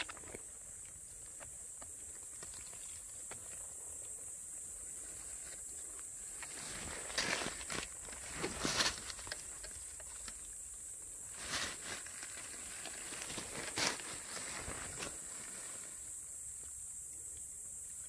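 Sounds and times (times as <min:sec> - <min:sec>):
dry leaves crunching: 0:06.4 - 0:10.5, 0:11.2 - 0:15.8.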